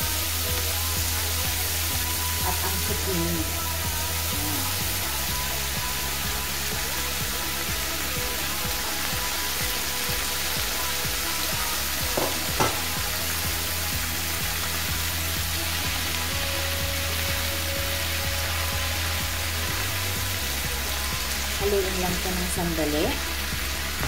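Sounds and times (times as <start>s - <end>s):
vegetables sizzling in a pan: 0.0s - 24.0s
sharp knocks: 12.2s - 12.9s.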